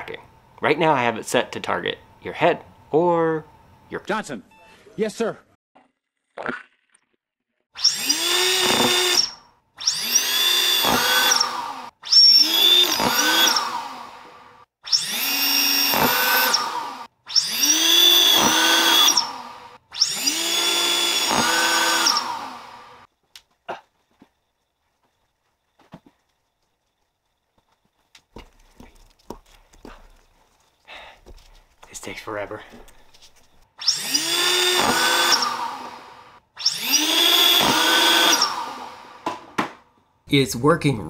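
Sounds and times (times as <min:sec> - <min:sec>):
motors whining: 0:07.8 - 0:23.1, 0:32.9 - 0:39.3.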